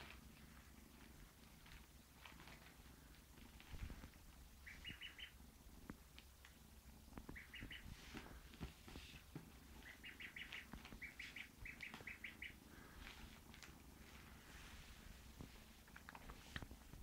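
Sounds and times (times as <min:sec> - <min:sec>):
soft rustling: 0:00.0 - 0:17.0
bird chirping: 0:04.6 - 0:05.4, 0:07.2 - 0:08.0, 0:09.7 - 0:12.6.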